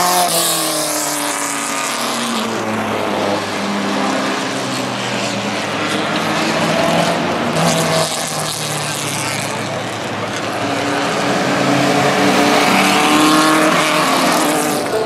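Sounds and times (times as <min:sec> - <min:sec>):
racing car engine passing: 0:00.0 - 0:15.0.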